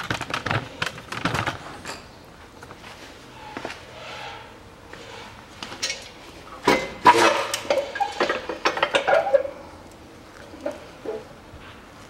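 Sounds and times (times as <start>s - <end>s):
metal clanks and clinks: 5.6s - 9.6s.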